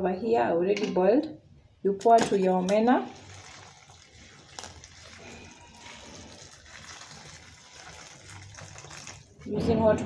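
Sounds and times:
water pouring into a bowl: 0:02.3 - 0:09.5.

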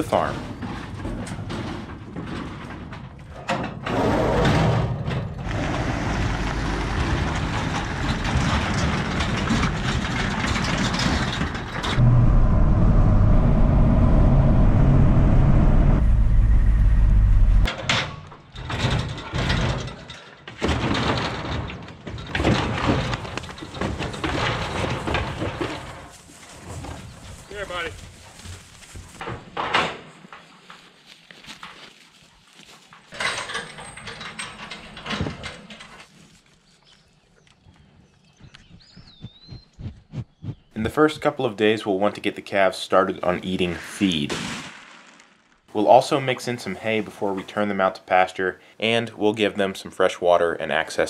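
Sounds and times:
cattle clattering through metal gates: 0:00.0 - 0:12.0, 0:17.7 - 0:27.0, 0:32.9 - 0:36.2
pickup truck engine and road noise: 0:12.0 - 0:17.7.

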